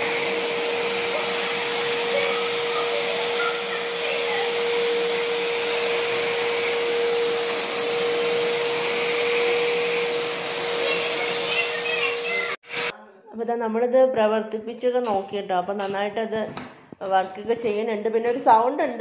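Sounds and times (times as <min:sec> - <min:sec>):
vacuum cleaner running: 0:00.0 - 0:12.9
vacuum nozzle on tiled floor: 0:00.0 - 0:12.9.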